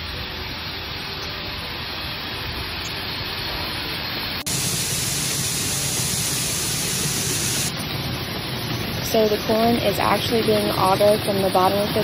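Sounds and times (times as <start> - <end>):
loud even hiss: 0.0 - 11.1
grain-handling machinery running: 4.5 - 12.0.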